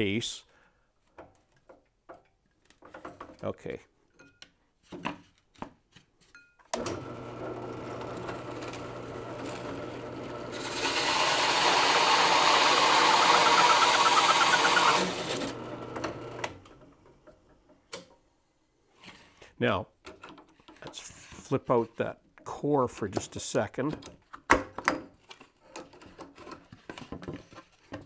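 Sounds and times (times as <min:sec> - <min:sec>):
drill press motor running: 0:06.8 - 0:16.6
hole saw cutting plywood: 0:06.9 - 0:16.5.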